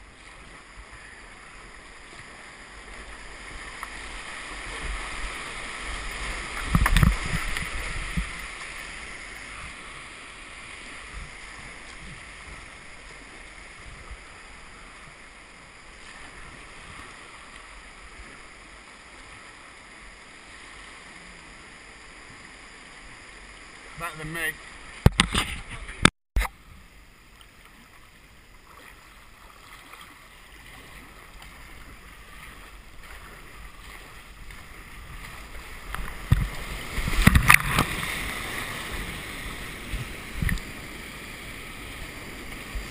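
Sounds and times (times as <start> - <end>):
kayak splashing and thumping: 0.0 - 19.9, 23.8 - 42.9
whitewater rapids rushing: 29.0 - 42.9.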